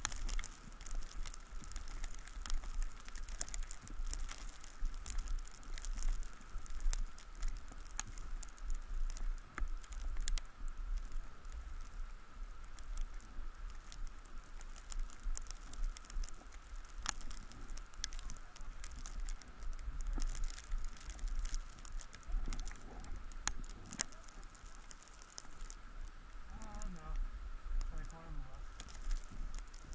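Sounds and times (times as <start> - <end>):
faint steady whine: 0.0 - 29.9.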